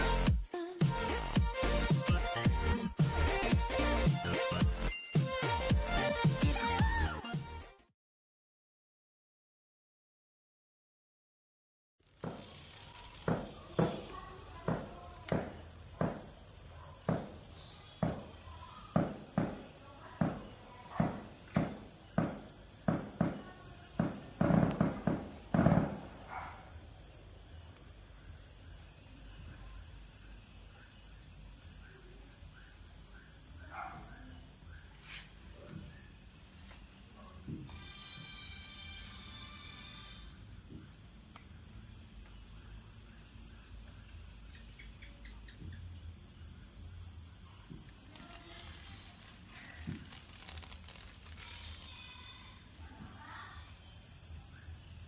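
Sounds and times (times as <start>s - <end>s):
crickets chirping: 12.0s - 55.0s.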